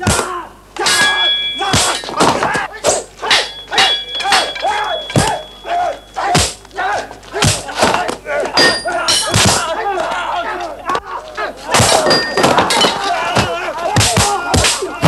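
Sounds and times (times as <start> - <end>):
fighters shouting and grunting: 0.0 - 15.0
punch and kick impacts: 6.4 - 6.6, 7.4 - 8.0.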